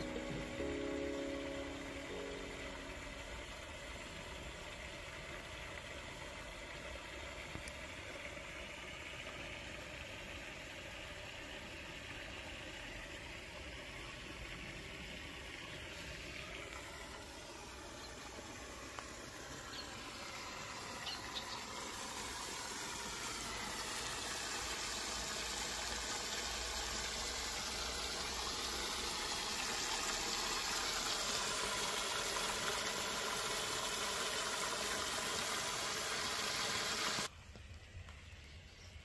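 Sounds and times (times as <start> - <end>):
hose water splashing on soil: 14.4 - 37.3.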